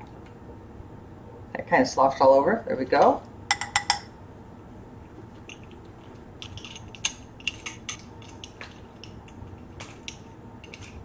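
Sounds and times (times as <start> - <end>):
kitchen items clicking and tapping: 6.4 - 11.0.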